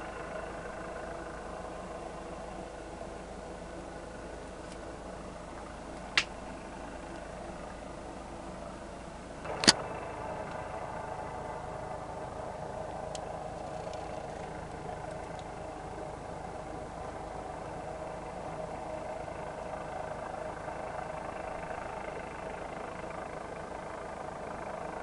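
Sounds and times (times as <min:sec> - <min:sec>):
distant helicopter droning: 0:00.0 - 0:25.0
sharp clicks: 0:09.6 - 0:09.8.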